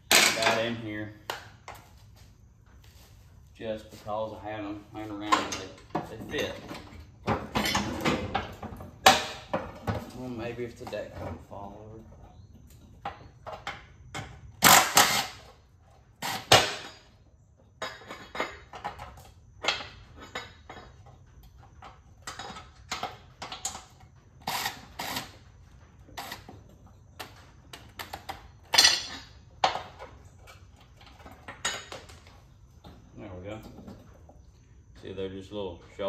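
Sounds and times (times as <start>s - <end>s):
tools clanking on metal: 0.0s - 0.9s, 5.0s - 14.4s, 17.8s - 25.2s, 27.2s - 34.3s.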